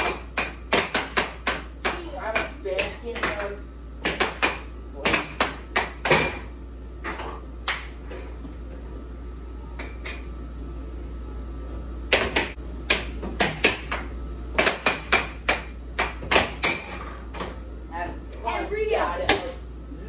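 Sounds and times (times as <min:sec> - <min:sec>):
air hockey mallets hitting puck: 0:00.0 - 0:08.0, 0:12.1 - 0:17.5.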